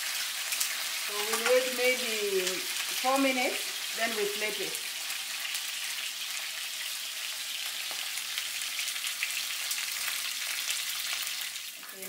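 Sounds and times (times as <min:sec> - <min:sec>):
crackling oil spatter: 0:00.0 - 0:07.0
fish frying in hot oil: 0:00.0 - 0:12.0.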